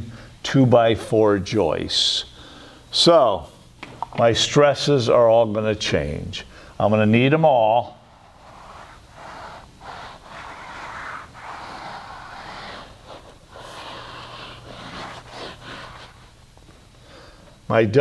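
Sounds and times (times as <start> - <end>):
eraser wiping a whiteboard: 8.0 - 16.5.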